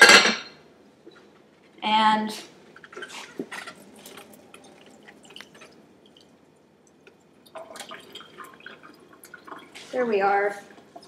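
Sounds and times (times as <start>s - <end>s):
water dripping into sink: 3.9s - 9.8s.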